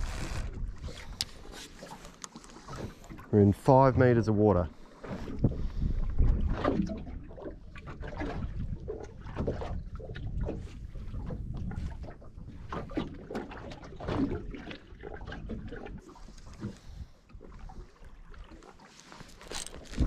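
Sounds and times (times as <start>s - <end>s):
wind rumble on microphone: 0.0s - 1.4s, 5.2s - 18.4s
waves lapping against boat hull: 0.0s - 20.0s.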